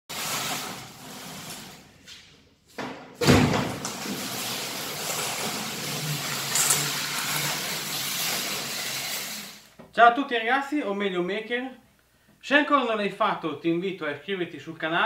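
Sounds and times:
cardboard box scraping on tiles: 0.1 - 1.9
loud thud: 2.8 - 3.8.

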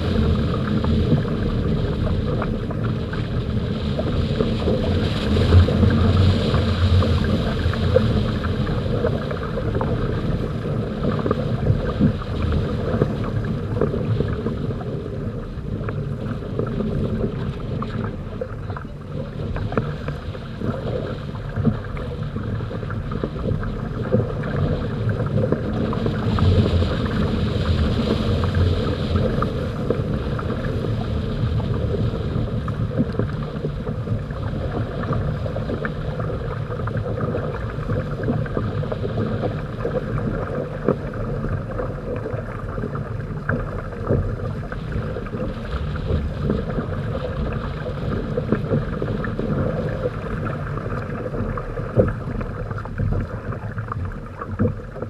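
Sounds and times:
wind buffeting microphone: 0.0 - 22.5
water rushing along a hull: 0.0 - 55.0.

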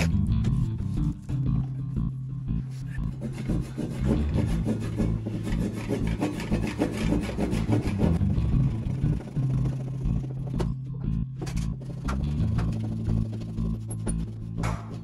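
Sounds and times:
hand saw cutting wood: 2.8 - 8.2.

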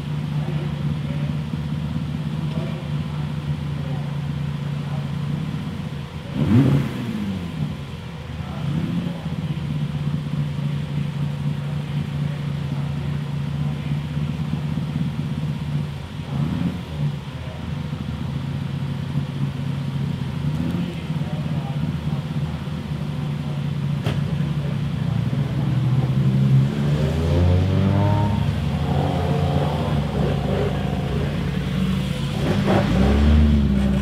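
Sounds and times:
car engine idling: 0.0 - 34.0
engine throttle blips: 19.1 - 34.0.

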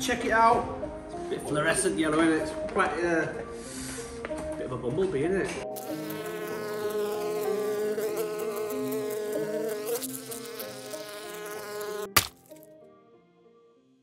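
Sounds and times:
bee buzzing: 5.7 - 12.6
sharp crack: 12.1 - 12.6.

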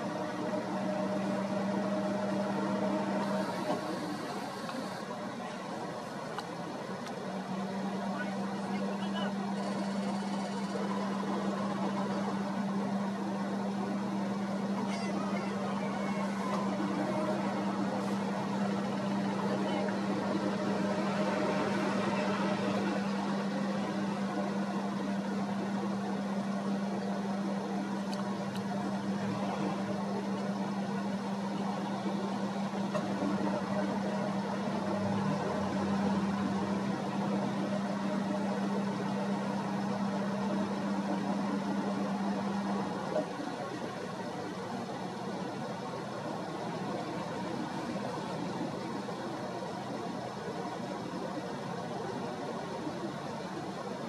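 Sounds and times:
boat engine running: 0.0 - 54.0
water: 0.0 - 54.0
wind: 0.0 - 54.0.

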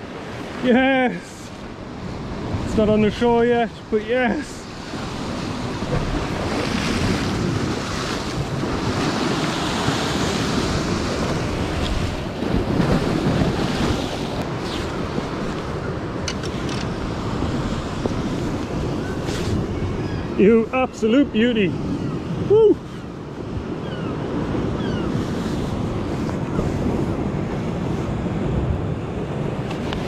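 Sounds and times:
sea surf breaking over rocks: 0.0 - 22.6
wind buffeting microphone: 4.6 - 20.8, 21.7 - 30.0.

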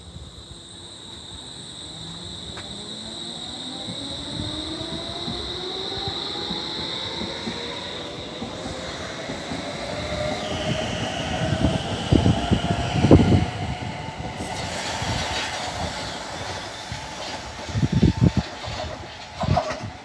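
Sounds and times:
electric train motor whine: 0.0 - 20.0
wheels clacking over rail joints: 15.1 - 20.0.

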